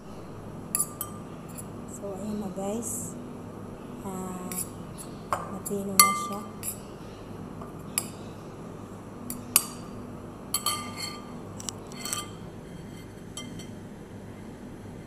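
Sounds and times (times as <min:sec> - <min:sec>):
metal spoon clinking on glass bowl: 0:00.8 - 0:01.2, 0:06.0 - 0:06.8, 0:10.6 - 0:11.3, 0:13.4 - 0:13.7.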